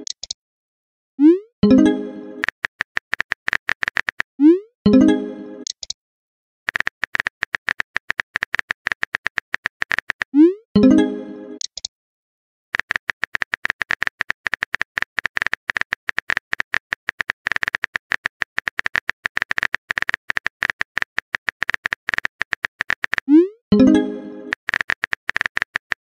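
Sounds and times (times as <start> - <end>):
keyboard typing clicks: 1.6 - 4.3, 5.6 - 6.0, 6.7 - 10.3, 11.6 - 11.9, 12.8 - 26.0.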